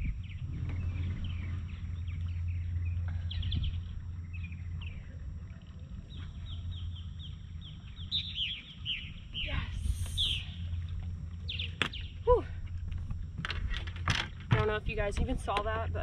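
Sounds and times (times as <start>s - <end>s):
small birds chirping: 0.0s - 5.2s, 6.0s - 10.8s, 11.4s - 12.3s
steady low rumble: 0.0s - 16.0s.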